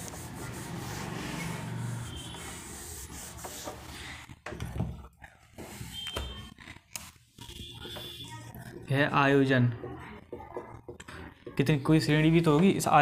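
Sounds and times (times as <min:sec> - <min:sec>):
rubbing scratching noise: 0:00.0 - 0:04.1.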